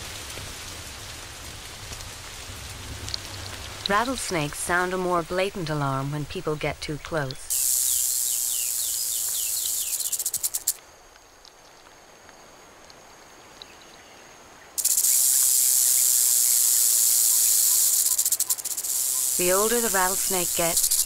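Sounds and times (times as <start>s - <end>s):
rattlesnake tail rattle buzzing: 7.5s - 10.8s, 14.8s - 21.0s.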